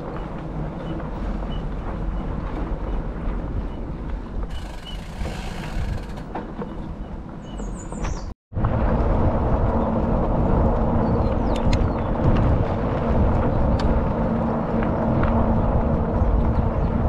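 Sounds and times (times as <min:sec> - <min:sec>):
tyres rolling over dirt: 0:00.0 - 0:07.4
wind rumble on microphone: 0:00.0 - 0:17.0
bike clicks and rattles: 0:04.4 - 0:07.0.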